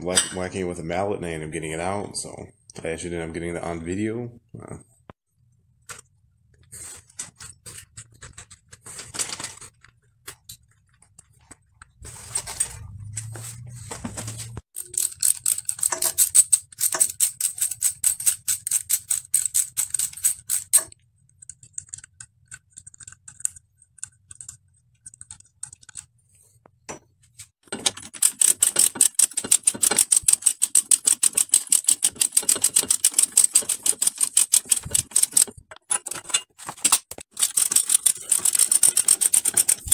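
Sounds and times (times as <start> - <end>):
metal tools and bicycle parts clinking: 14.8 - 21.0, 27.7 - 39.9
ratchet wrench clicking: 14.8 - 21.0, 28.2 - 35.5, 37.4 - 39.9.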